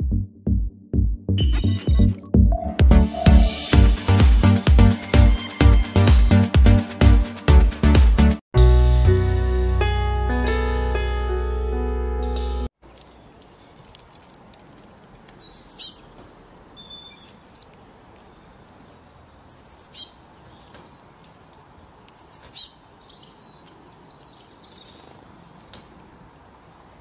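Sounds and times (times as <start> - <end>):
songbirds chirping: 12.8 - 27.0.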